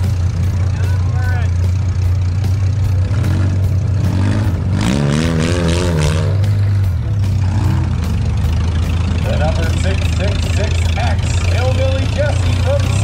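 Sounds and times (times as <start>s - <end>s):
car engine revving: 0.0s - 13.0s
car engines droning: 0.0s - 13.0s.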